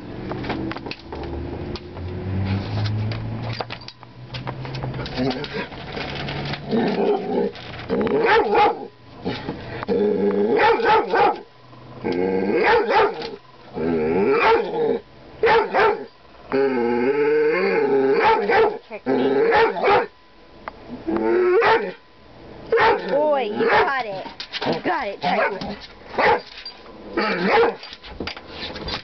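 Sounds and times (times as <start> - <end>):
young dog barking and yowling: 8.1 - 9.0, 10.5 - 11.5, 12.5 - 13.4, 14.2 - 14.8, 15.4 - 16.1, 17.5 - 20.2, 21.4 - 22.0, 22.7 - 26.5, 27.2 - 27.9.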